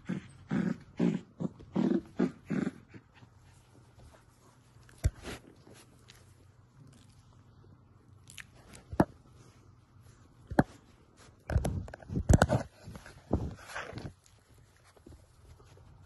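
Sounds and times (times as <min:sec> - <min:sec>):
puppy chewing and tugging fabric: 0:00.0 - 0:09.5, 0:10.4 - 0:16.0.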